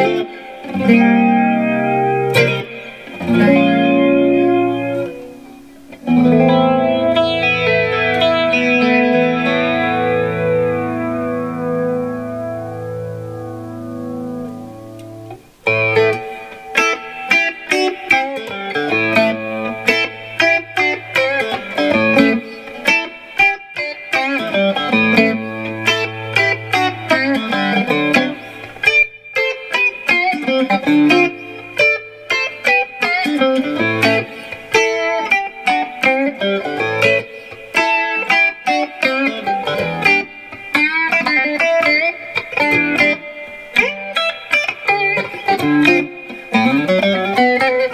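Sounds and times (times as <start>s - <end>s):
electric guitar through an amp: 0.0s - 47.9s.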